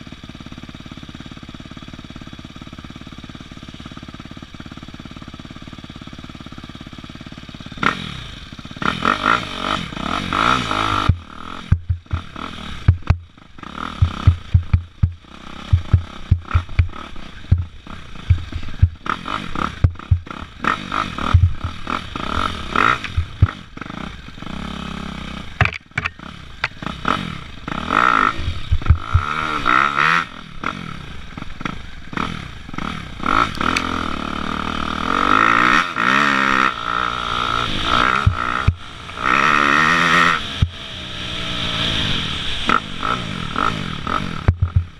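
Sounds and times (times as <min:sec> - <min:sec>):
dirt bike engine revving: 0:00.2 - 0:44.9
clattering knocks and scraping: 0:25.6 - 0:26.8.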